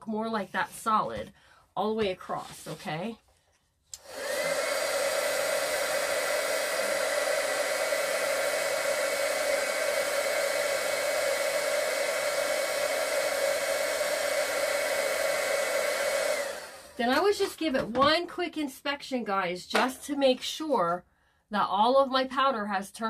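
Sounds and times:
heat gun whining: 4.0 - 17.3
hot air blowing: 4.0 - 17.4.

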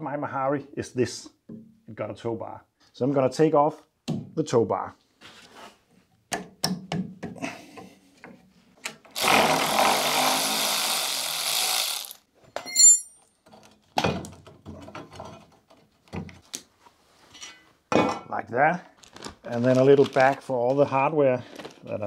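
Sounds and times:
power tool running: 9.2 - 12.2
short metallic ring: 12.6 - 13.2.

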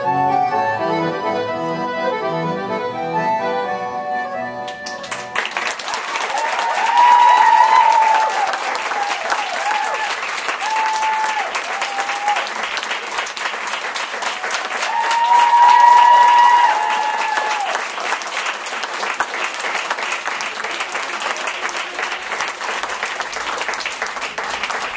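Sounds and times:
audience applauding: 4.6 - 24.9
voices cheering in whoops: 6.2 - 12.5, 14.8 - 17.8.

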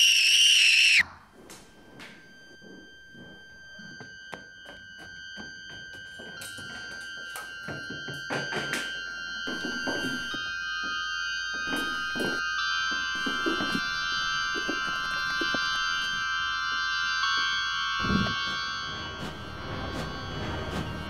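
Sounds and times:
held keyboard tones: 2.2 - 21.0.

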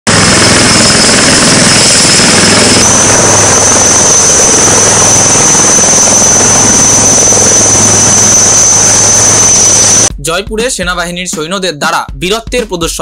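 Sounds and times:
helicopter hovering: 0.1 - 10.1
high turbine whine: 0.1 - 10.1.

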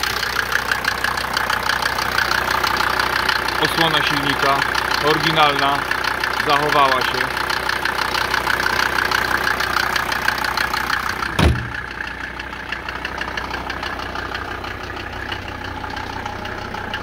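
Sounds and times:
diesel engine idling: 0.0 - 17.0
car bonnet slamming shut: 11.2 - 12.0.

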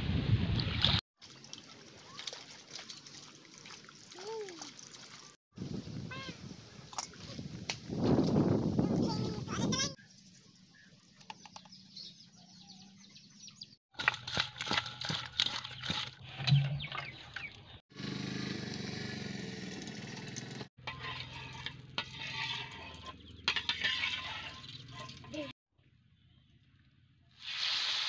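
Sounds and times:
spoon scraping steel bowl: 20.8 - 25.4
oil hissing in pan: 27.4 - 28.0.

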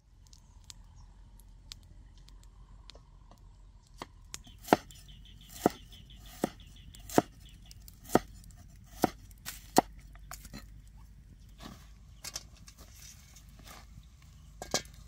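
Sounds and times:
knife chopping on wooden block: 4.6 - 4.9, 5.5 - 7.4, 8.0 - 9.9.

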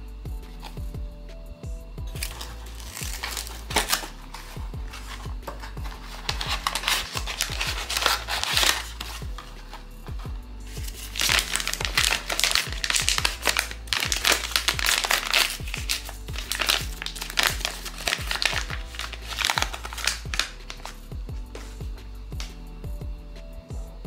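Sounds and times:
background music: 0.0 - 24.0
crinkly wrapper being unwrapped: 2.2 - 10.2, 10.8 - 21.0.

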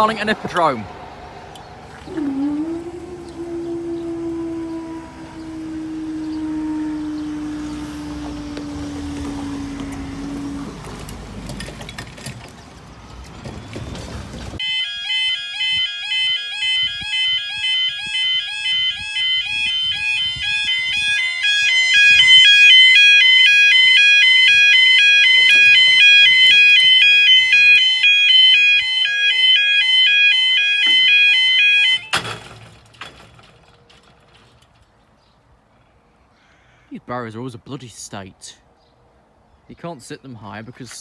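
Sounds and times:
level crossing alarm warbling: 2.0 - 11.1, 14.6 - 32.3.

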